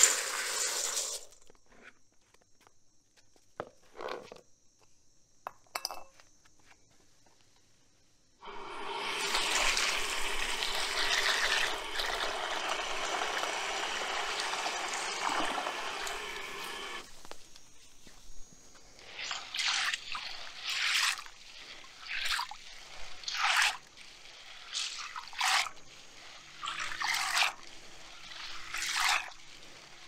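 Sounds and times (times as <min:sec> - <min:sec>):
water pouring into metal bowl: 0:00.0 - 0:01.3, 0:08.4 - 0:17.0, 0:19.0 - 0:30.0.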